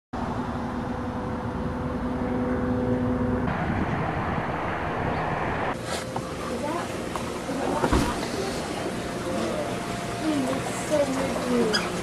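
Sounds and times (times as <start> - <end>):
low road rumble: 0.2 - 5.8
broad rushing noise: 0.2 - 9.1
vehicle engine humming: 0.2 - 12.0.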